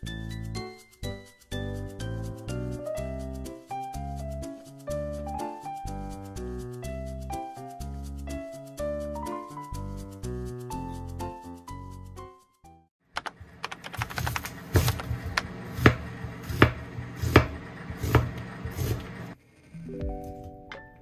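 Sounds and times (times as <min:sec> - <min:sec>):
piano-like music: 0:00.0 - 0:12.9, 0:19.9 - 0:21.0.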